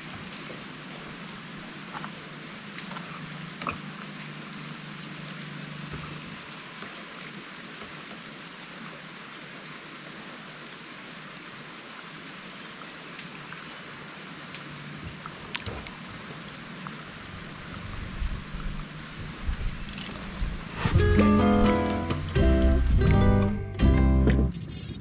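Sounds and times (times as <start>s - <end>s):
outdoor hiss: 4.2s - 23.4s.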